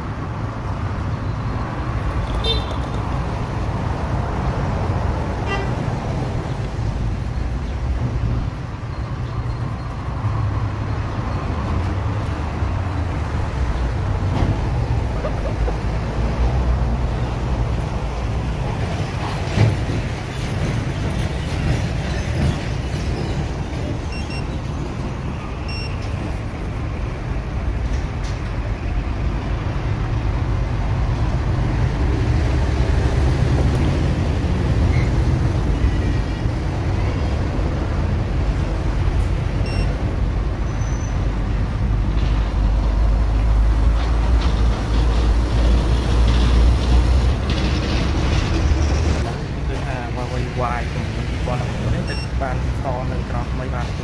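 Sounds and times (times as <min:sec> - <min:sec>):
road traffic rumble: 0:00.0 - 0:54.0
car horn toots: 0:02.3 - 0:02.9, 0:05.4 - 0:05.8.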